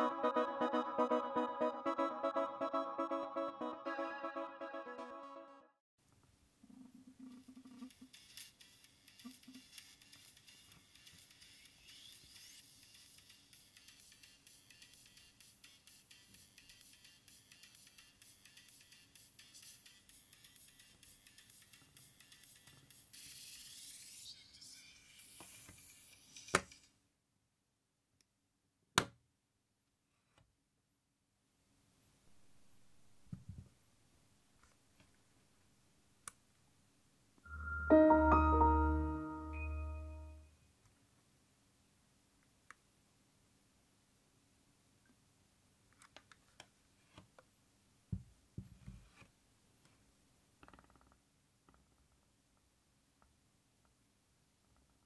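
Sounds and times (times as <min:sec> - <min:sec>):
faint music from earbud: 0:07.6 - 0:26.9.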